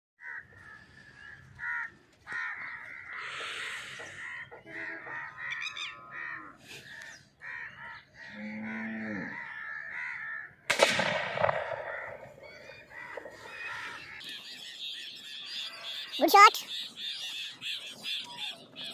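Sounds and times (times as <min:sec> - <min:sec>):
birds calling: 0:00.2 - 0:18.9
shotgun shot with echo: 0:10.7 - 0:13.4.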